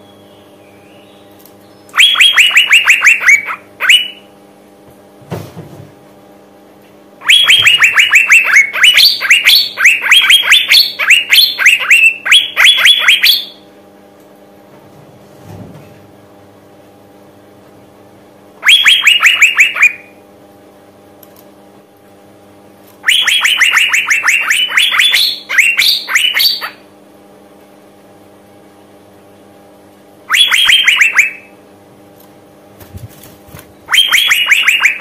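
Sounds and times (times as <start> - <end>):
bird calling sharp falling notes: 7.2 - 13.6, 18.6 - 20.1, 23.0 - 26.8, 30.3 - 31.5, 33.9 - 35.0.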